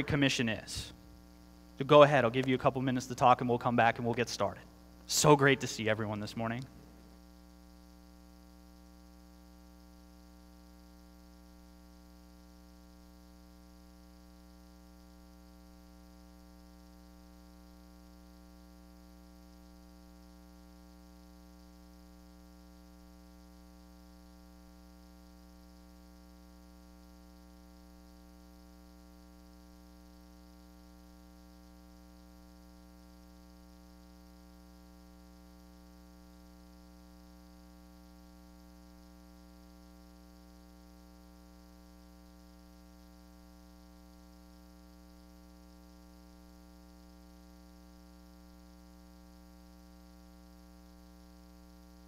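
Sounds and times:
faint hiss: 0:00.0 - 0:08.2
faint steady hum: 0:00.0 - 0:52.0.

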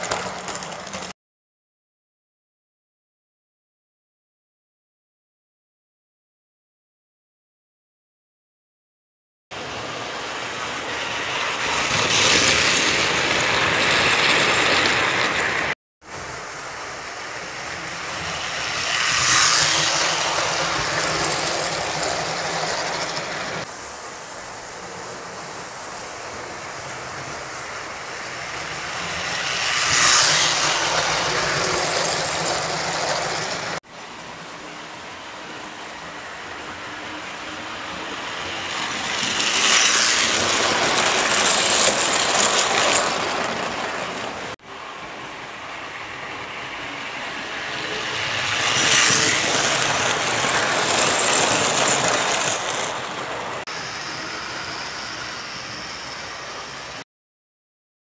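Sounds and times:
toy trains rattling on metal track: 0:00.0 - 0:01.1, 0:11.1 - 0:15.7, 0:17.5 - 0:23.7, 0:28.2 - 0:33.8, 0:38.4 - 0:44.5, 0:47.8 - 0:57.0.

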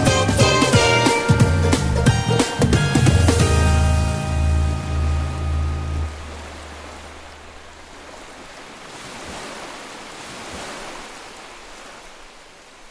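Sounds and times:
song backing music: 0:00.0 - 0:06.4
ocean waves: 0:00.0 - 0:12.9.

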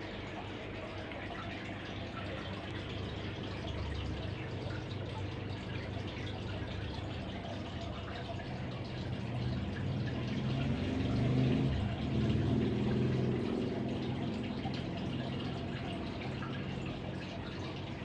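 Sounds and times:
water pump humming: 0:00.0 - 0:18.0
water trickling and dripping: 0:00.0 - 0:18.0.

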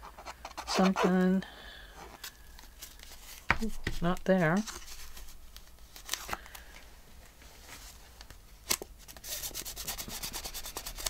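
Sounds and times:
scratchy rubbing on card: 0:00.0 - 0:01.2, 0:09.2 - 0:11.0.

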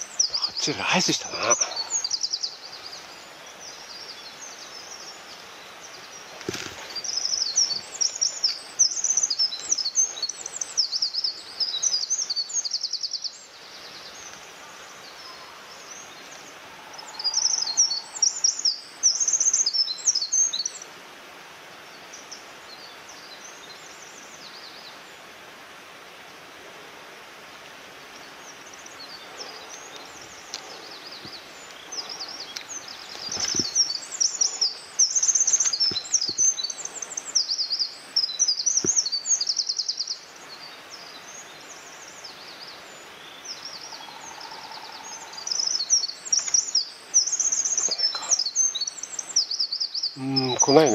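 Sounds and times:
small songbirds twittering: 0:00.0 - 0:50.9.

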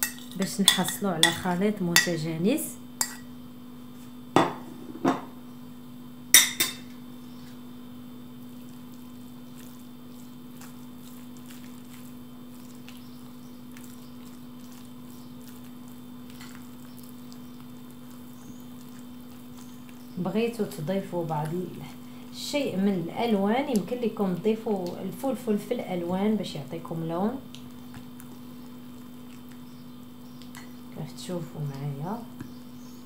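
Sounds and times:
metal spoon knocking on bowl: 0:00.0 - 0:01.4
spoon stirring thick batter: 0:00.0 - 0:02.2, 0:03.0 - 0:03.3, 0:08.4 - 0:32.7
steady low hum: 0:00.0 - 0:33.0.

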